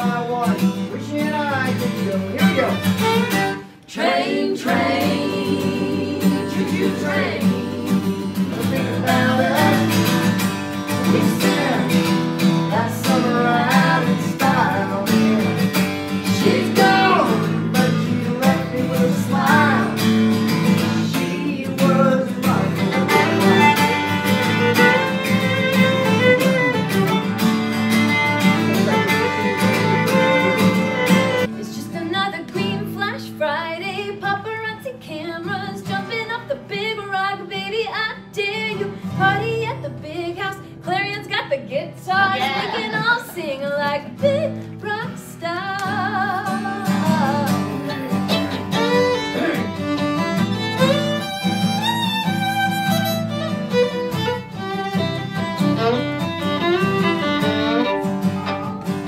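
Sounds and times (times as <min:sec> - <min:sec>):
acoustic guitars playing: 0:00.0 - 0:59.0
fiddle playing: 0:01.4 - 0:21.1, 0:22.3 - 0:31.6, 0:42.2 - 0:43.3, 0:46.5 - 0:59.0.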